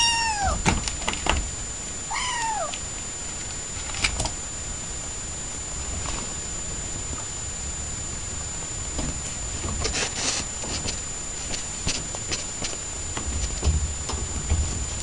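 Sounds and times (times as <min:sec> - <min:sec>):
kitten meowing: 0:00.0 - 0:00.6, 0:02.1 - 0:02.8.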